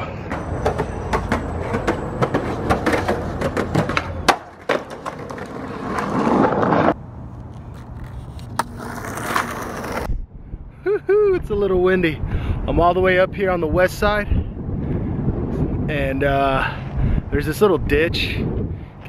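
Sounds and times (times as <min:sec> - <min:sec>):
skateboard clack: 0:00.3 - 0:10.1
skateboard rolling on pavement: 0:00.3 - 0:10.1.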